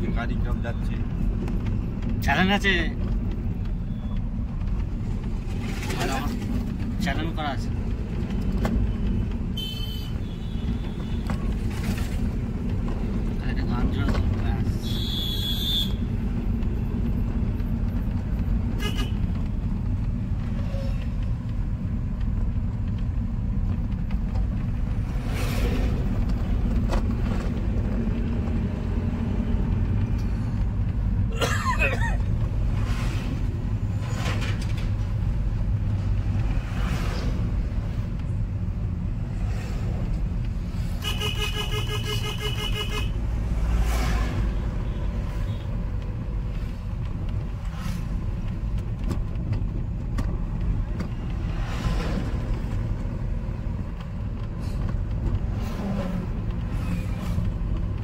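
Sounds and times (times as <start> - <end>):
vehicle engine and road drone: 0.0 - 58.0
vehicles passing: 0.0 - 58.0
vehicle horn: 14.8 - 16.0, 18.8 - 19.2, 41.0 - 43.2.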